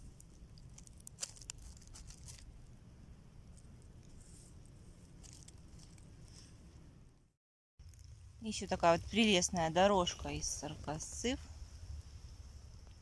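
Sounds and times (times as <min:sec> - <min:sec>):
fingers rubbing mushroom and herbs: 0:00.0 - 0:02.6
low steady rumble: 0:00.0 - 0:13.0.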